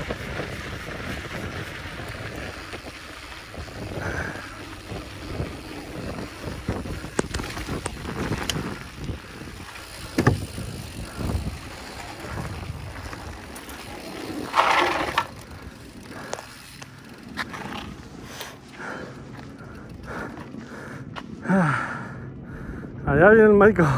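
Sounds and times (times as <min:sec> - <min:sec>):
wind rushing over microphone: 0:00.0 - 0:16.2
bike knocks and rattles: 0:00.0 - 0:18.6
bike tyre noise on dirt: 0:00.0 - 0:22.9.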